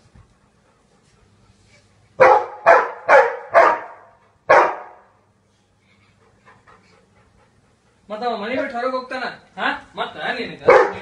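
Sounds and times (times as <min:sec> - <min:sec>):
dog barking: 0:02.2 - 0:05.1, 0:10.6 - 0:11.0.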